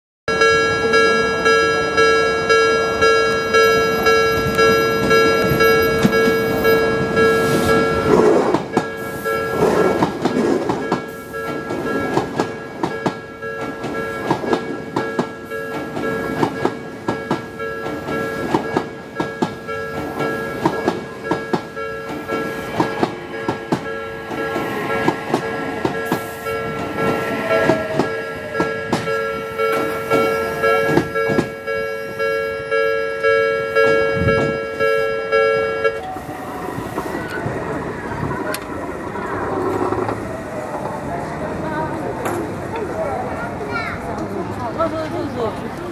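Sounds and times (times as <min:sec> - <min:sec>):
level-crossing alarm dinging: 0:00.3 - 0:40.8
train wheels clacking over rail joints: 0:03.7 - 0:31.6, 0:38.5 - 0:41.0.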